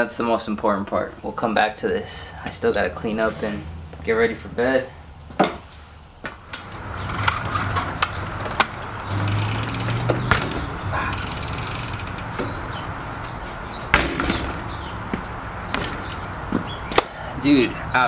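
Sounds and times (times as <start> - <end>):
tyres rolling on concrete: 5.3 - 17.8
knocks from bike handling: 5.4 - 12.6, 13.9 - 17.1
bike freehub ratcheting: 6.5 - 12.5, 15.8 - 16.4.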